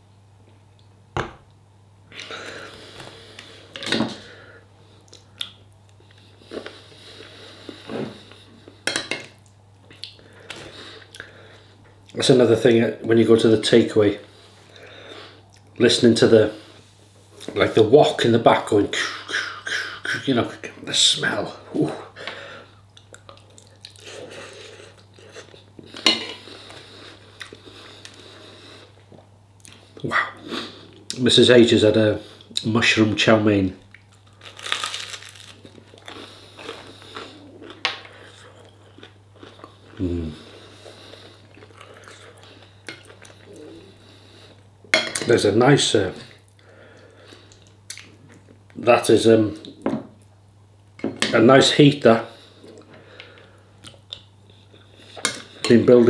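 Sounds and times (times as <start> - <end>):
breathing: 2.2 - 5.0, 6.1 - 8.8, 10.2 - 11.8, 14.2 - 15.4, 22.2 - 22.8, 26.3 - 29.0, 40.3 - 42.8, 43.8 - 44.6, 46.6 - 47.6, 52.3 - 53.8
chewing: 33.9 - 44.6.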